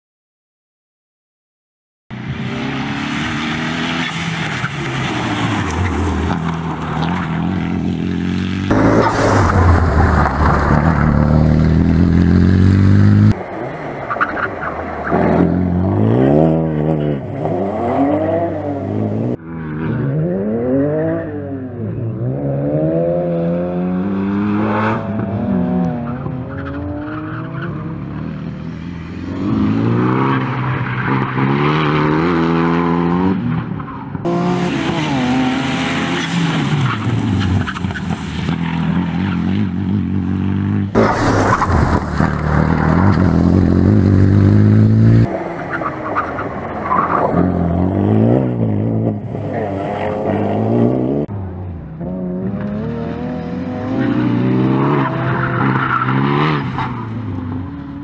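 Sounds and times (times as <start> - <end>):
car engine revving hard: 7.6 - 13.4.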